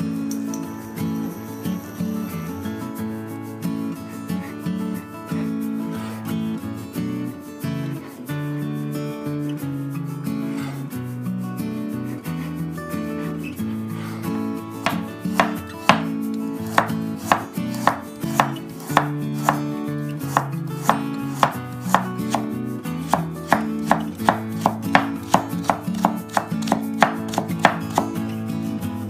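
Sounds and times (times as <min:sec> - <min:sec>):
knife chopping on cutting board: 0:14.9 - 0:16.1, 0:16.7 - 0:19.7, 0:20.3 - 0:22.5, 0:23.1 - 0:28.2.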